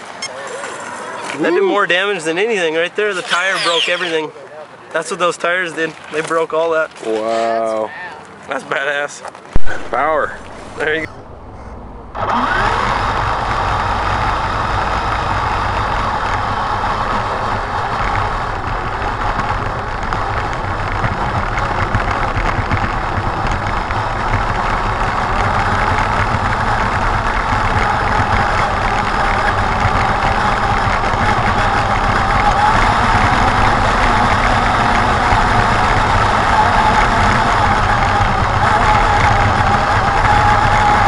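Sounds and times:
toy truck motor whining: 0:03.0 - 0:04.2, 0:12.2 - 0:41.0.

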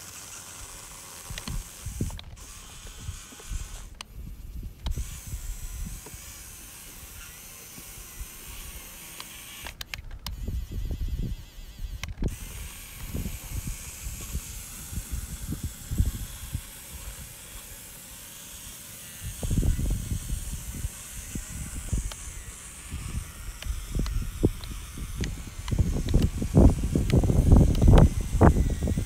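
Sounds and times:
sharp small clicks: 0:00.0 - 0:29.0
wind buffeting microphone: 0:01.3 - 0:09.0, 0:10.0 - 0:17.8, 0:19.2 - 0:29.0
steady high hiss: 0:12.3 - 0:29.0.

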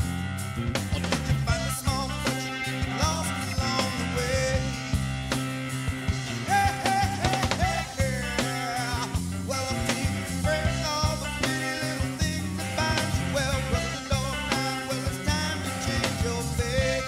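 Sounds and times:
rock song with drums and guitars: 0:00.0 - 0:17.0.

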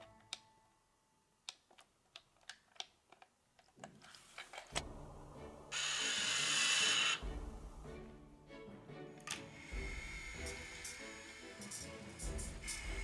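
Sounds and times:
small sharp plastic clicks: 0:01.4 - 0:04.1
loud even hiss: 0:05.7 - 0:07.5, 0:09.4 - 0:13.0.

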